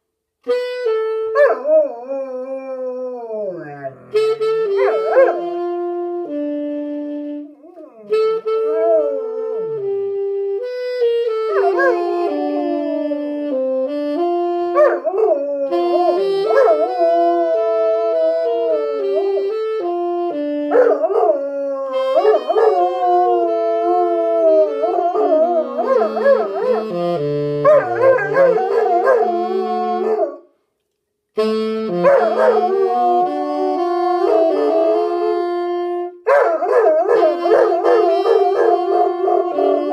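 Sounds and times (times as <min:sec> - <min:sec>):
saxophone slow held notes: 0:03.8 - 0:21.2, 0:21.9 - 0:30.5, 0:31.4 - 0:36.3, 0:37.1 - 0:39.9
dog howling: 0:11.5 - 0:13.2, 0:20.7 - 0:26.9, 0:27.7 - 0:30.4, 0:32.0 - 0:35.5, 0:36.4 - 0:39.9.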